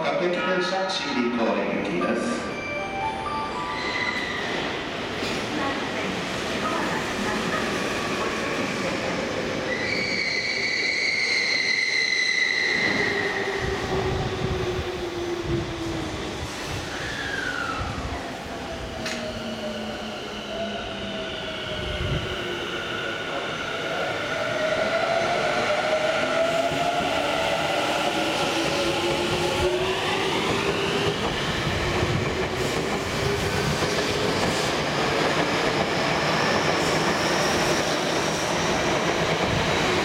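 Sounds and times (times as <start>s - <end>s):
train wheels rumbling on rails: 12.6s - 40.0s.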